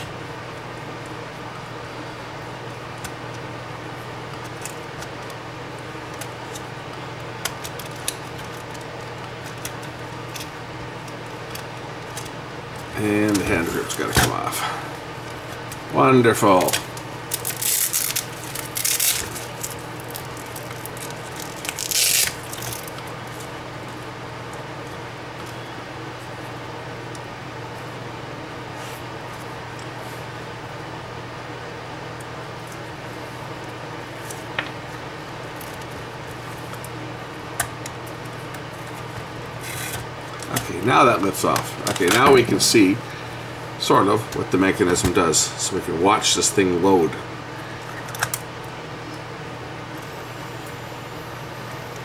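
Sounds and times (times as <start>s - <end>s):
low steady hum: 0.0s - 52.0s
nylon strap rubbing and rustling: 17.3s - 23.6s.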